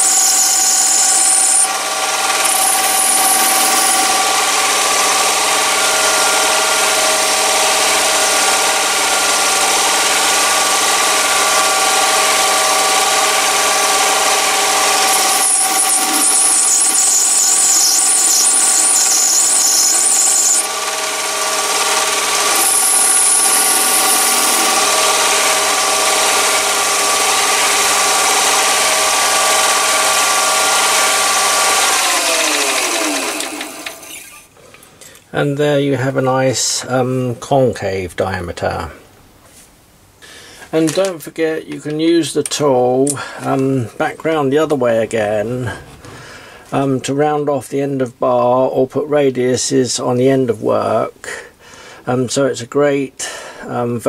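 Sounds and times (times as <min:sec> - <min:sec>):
high-pitched metal cutting noise: 0:00.0 - 0:34.5
lathe motor whine: 0:00.0 - 0:34.5.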